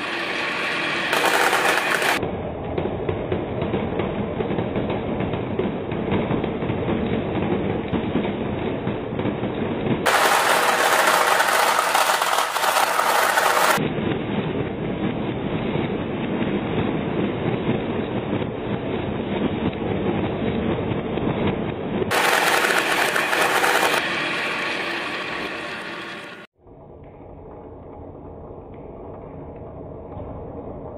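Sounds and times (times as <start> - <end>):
marbles rattling on wooden tracks: 1.1 - 2.2, 10.1 - 13.8, 22.1 - 24.0
marbles clattering into plastic: 10.1 - 13.8.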